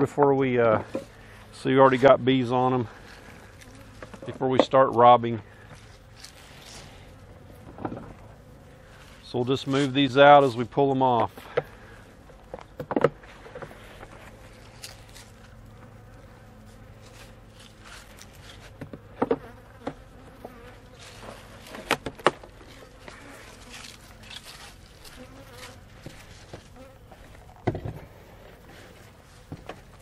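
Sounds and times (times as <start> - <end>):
bees buzzing: 0.4 - 30.0
wooden knocks of hive frames: 4.0 - 4.8, 7.6 - 8.3, 11.3 - 14.2, 18.7 - 22.8, 26.0 - 28.1, 29.4 - 30.0.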